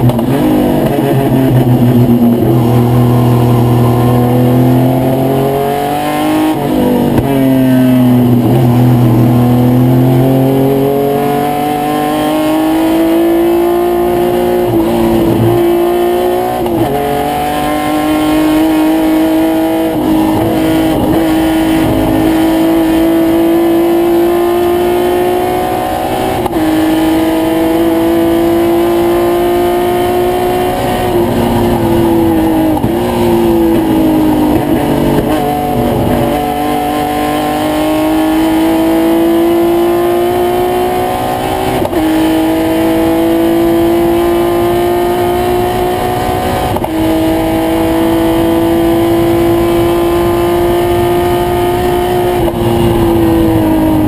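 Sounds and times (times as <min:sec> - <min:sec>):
racing engine revving: 0:00.0 - 0:54.0.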